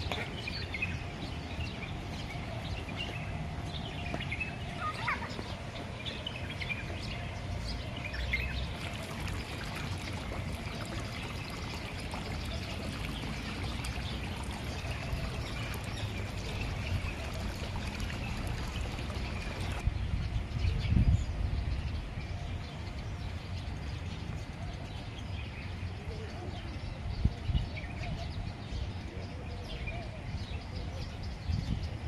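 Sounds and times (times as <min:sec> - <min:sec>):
water trickling in fountain: 0:00.0 - 0:20.6.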